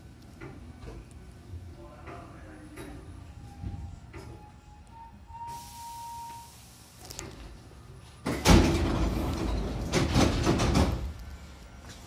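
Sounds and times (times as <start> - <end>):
train doors sliding open: 2.9 - 12.0
knocks of sliding door leaves: 8.3 - 11.1.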